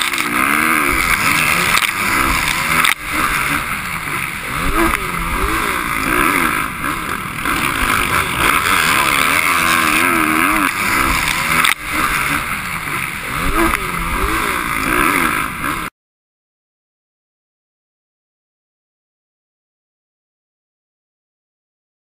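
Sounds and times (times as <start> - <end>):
dirt bike engine revving: 0.0 - 15.9.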